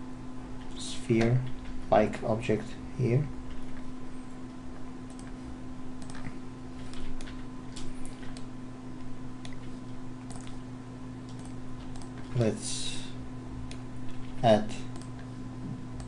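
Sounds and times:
steady low hum: 0.0s - 16.0s
mouse and keyboard clicks: 9.4s - 10.6s.

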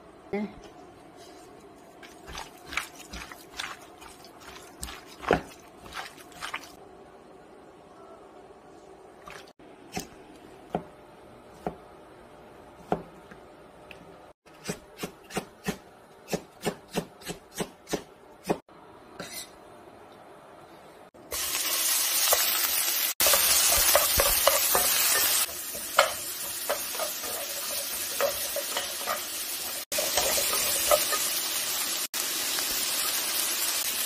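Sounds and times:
oil sizzling in a frying pan: 21.3s - 34.0s
spatula tapping and scraping pan: 23.2s - 31.4s.

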